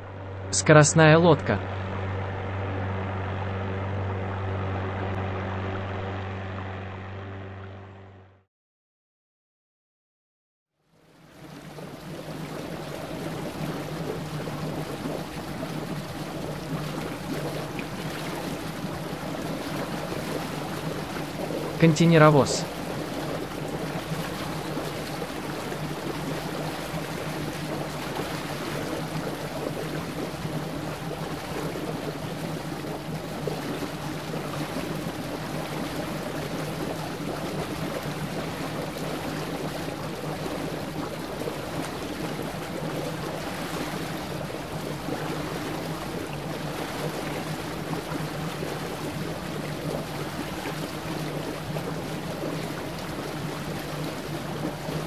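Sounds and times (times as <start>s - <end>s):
ship engine drone: 0.0s - 8.4s, 11.9s - 55.0s
sea water washing: 11.0s - 55.0s.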